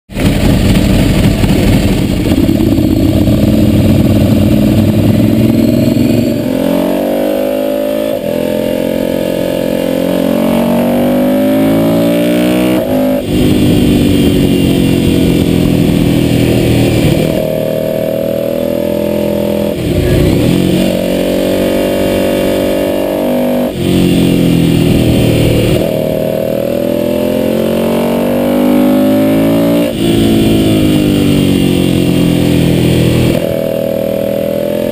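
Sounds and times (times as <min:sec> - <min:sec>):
wind rush: 0:00.1 - 0:05.5
motorcycle engine revving: 0:00.1 - 0:34.9.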